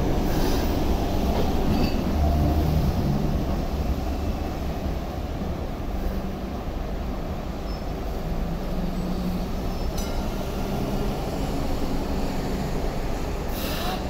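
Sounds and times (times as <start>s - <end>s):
light rail car rumbling: 0.0s - 14.0s
faint clink: 9.9s - 10.4s.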